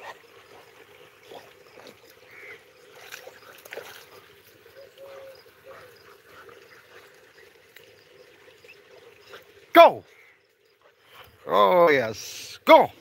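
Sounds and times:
puppy splashing in water: 0.0s - 10.4s.

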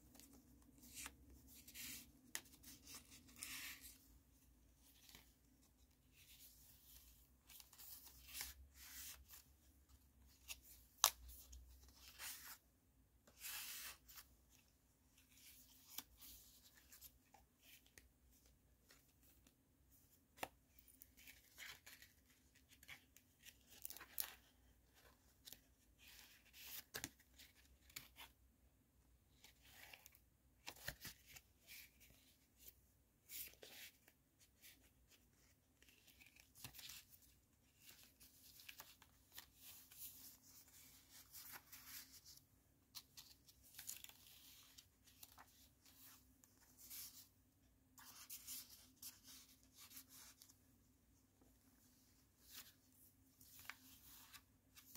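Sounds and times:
paper pages rustling: 33.3s - 47.3s.

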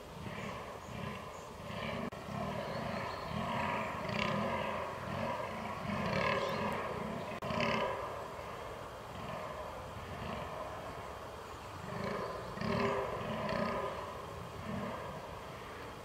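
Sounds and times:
deer grunting: 0.2s - 11.0s, 11.8s - 15.8s.

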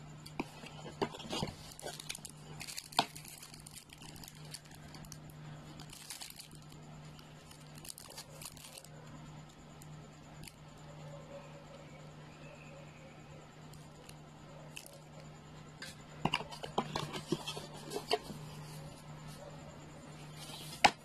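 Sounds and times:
steady low hum: 0.0s - 21.0s
plastic wrapping crinkling: 0.3s - 9.2s, 14.7s - 15.0s, 16.3s - 19.0s.

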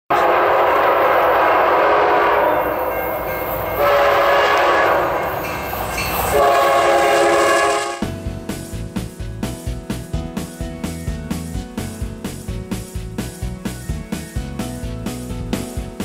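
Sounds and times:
locomotive air horn: 0.1s - 5.4s, 6.2s - 8.2s
passing train rumble: 0.1s - 16.0s.

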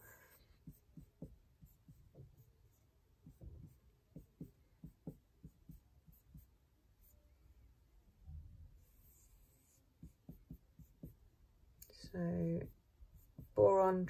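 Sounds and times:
marker scratching on whiteboard: 0.0s - 7.2s, 8.8s - 11.2s, 11.8s - 14.0s.

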